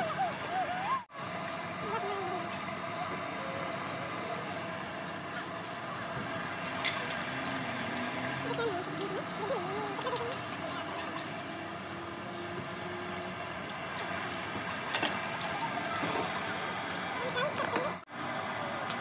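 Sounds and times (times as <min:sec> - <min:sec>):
oil sizzling in deep fryer: 0:06.1 - 0:19.0.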